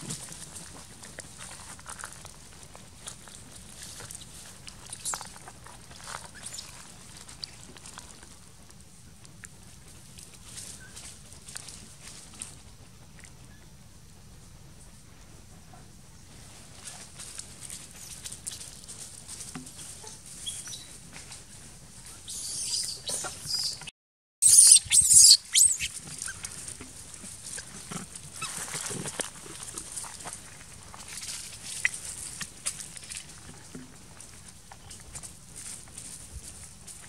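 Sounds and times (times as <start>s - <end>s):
monkeys squealing: 24.4s - 25.9s.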